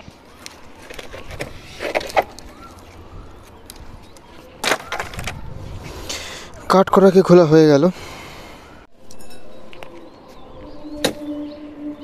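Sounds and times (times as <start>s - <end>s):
wooden sticks knocking and rustling: 0.0s - 5.5s.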